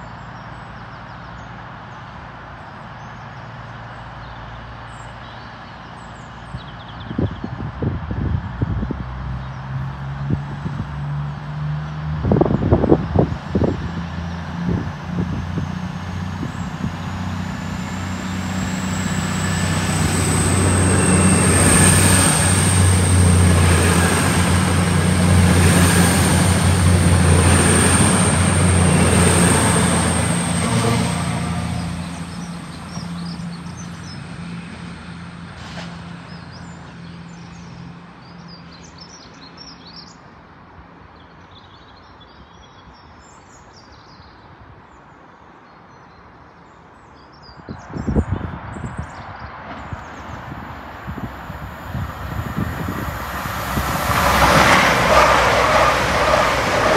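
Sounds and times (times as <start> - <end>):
diesel train engine: 12.6 - 38.2, 49.6 - 56.9.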